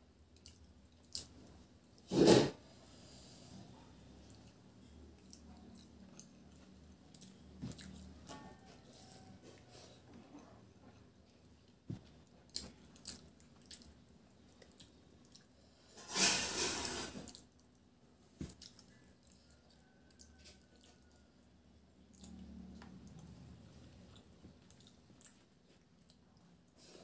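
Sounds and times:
chewing: 0.2s - 2.1s, 3.7s - 15.9s, 17.3s - 27.0s
fingers squishing wet food: 11.2s - 15.6s.

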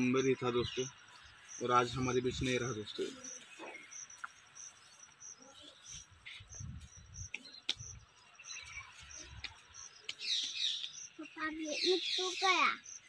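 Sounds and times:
cricket chirping: 0.0s - 13.0s.

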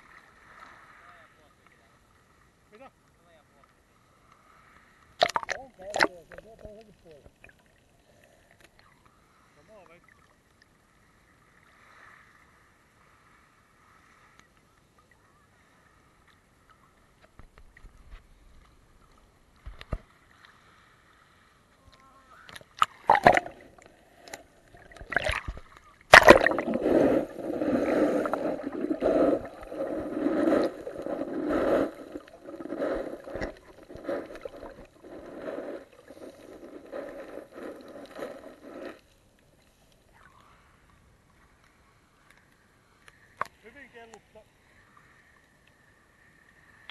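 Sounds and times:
knocks and splashes: 5.2s - 6.5s, 22.6s - 23.8s, 24.8s - 26.9s
muffled underwater sloshing: 15.1s - 42.0s.

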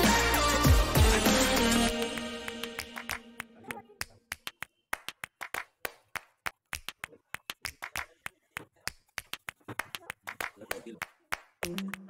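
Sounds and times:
background music: 0.0s - 3.8s.

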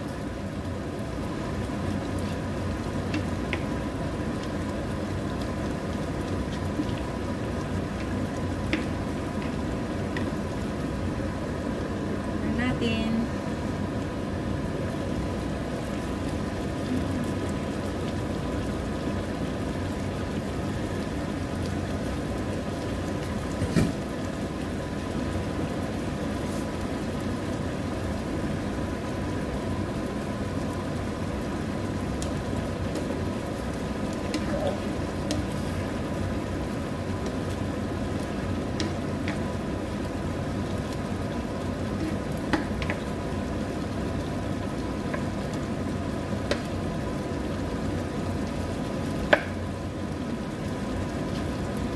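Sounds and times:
stew simmering and sizzling: 0.0s - 51.9s.

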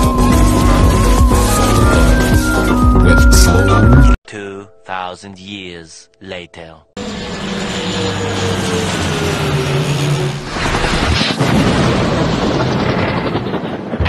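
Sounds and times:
propeller plane engine droning: 7.0s - 14.0s.

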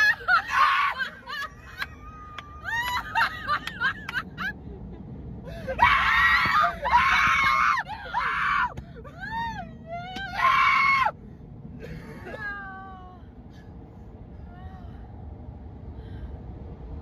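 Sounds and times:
people screaming: 0.0s - 3.9s, 5.5s - 11.2s
low rumble: 0.0s - 17.0s.

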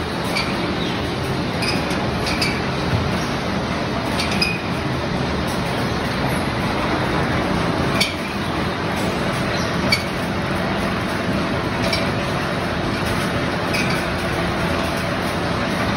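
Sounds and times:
machinery running: 0.0s - 15.9s.

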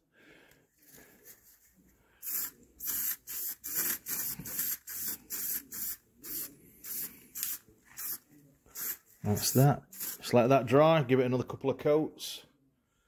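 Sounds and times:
spray paint can hissing: 2.2s - 10.3s.

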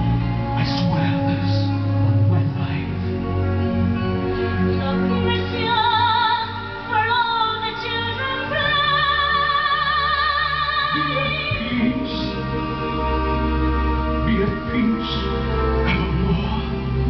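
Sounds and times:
musical accompaniment: 0.0s - 17.0s
woman singing with vibrato: 4.8s - 12.3s.

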